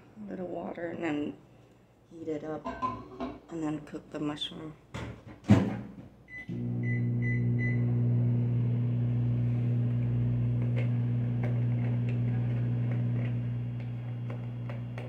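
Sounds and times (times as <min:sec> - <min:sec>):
microwave keypad beeping: 0:06.3 - 0:08.2
microwave humming: 0:06.3 - 0:15.0.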